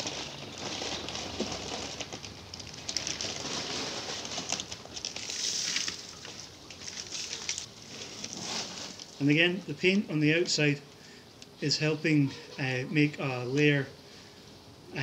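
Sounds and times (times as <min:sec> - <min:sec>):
water splashing and dripping: 0:05.2 - 0:07.7.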